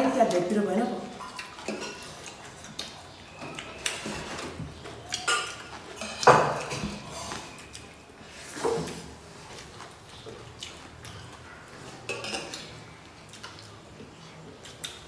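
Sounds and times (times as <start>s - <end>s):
chewing and lip sounds: 1.2s - 8.0s, 8.8s - 15.0s.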